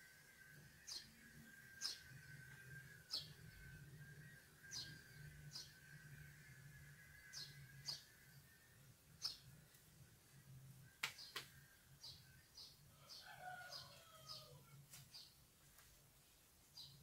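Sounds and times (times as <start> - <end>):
small bird chirps: 0.5 - 9.9.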